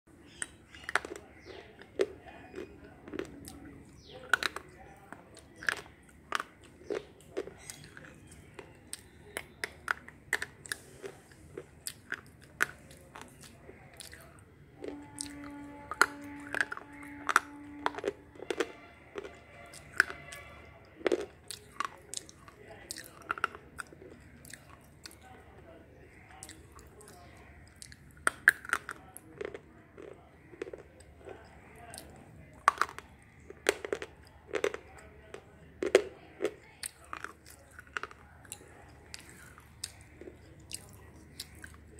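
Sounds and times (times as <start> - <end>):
chewing: 0.2 - 41.9
pencil crunching between teeth: 0.3 - 25.3, 26.1 - 41.9.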